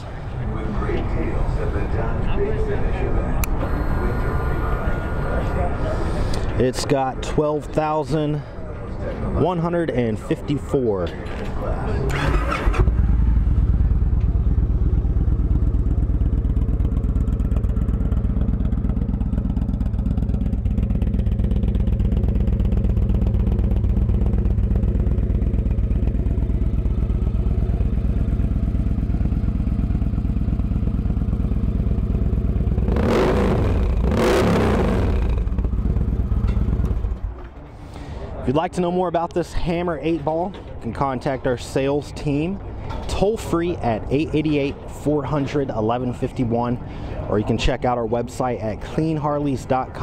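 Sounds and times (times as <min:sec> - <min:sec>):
engine revving bursts: 0:03.4 - 0:06.2, 0:32.7 - 0:35.8
motorcycle engine idling: 0:12.9 - 0:34.2, 0:34.8 - 0:37.4.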